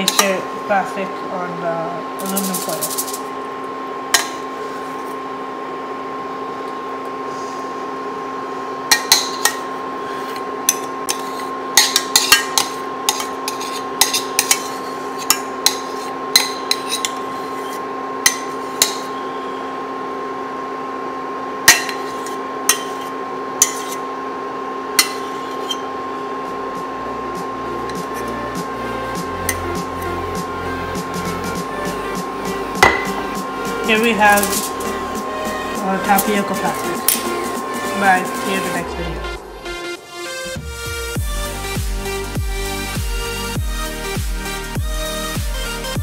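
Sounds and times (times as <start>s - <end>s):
steady hum: 0.0s - 46.0s
metal utensil scraping saucepan: 2.2s - 3.3s, 9.2s - 17.8s, 21.8s - 24.0s, 25.0s - 25.9s, 33.9s - 35.0s.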